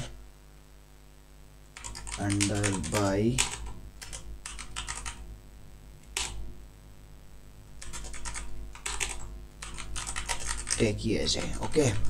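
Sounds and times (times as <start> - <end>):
keyboard typing: 1.7 - 5.3, 6.1 - 6.4, 7.8 - 12.0.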